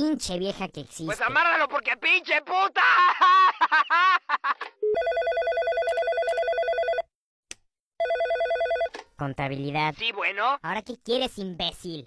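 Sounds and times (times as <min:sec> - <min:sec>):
person speaking: 0:00.0 - 0:03.3, 0:09.2 - 0:12.0
telephone ringing trill: 0:04.8 - 0:07.1, 0:08.0 - 0:08.9.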